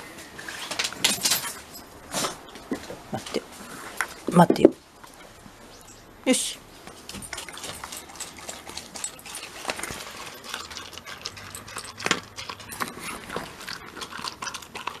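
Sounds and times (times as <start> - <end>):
dog crunching dry kibble: 7.0 - 15.0.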